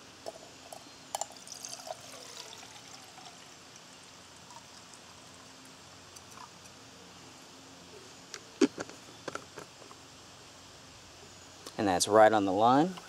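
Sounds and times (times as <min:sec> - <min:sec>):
water pouring into pot: 0:00.2 - 0:05.5.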